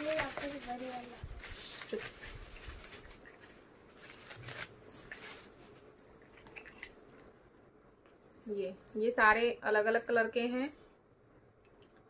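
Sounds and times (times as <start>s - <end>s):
faint rustling: 0.0s - 9.1s.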